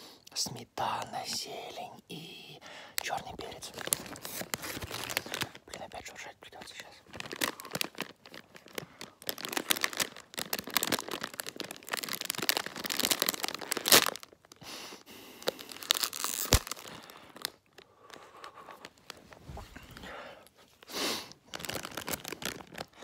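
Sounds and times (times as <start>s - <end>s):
popcorn being chewed: 3.0s - 14.6s, 21.4s - 23.0s
popcorn bag rustling: 3.1s - 14.6s, 15.4s - 23.0s.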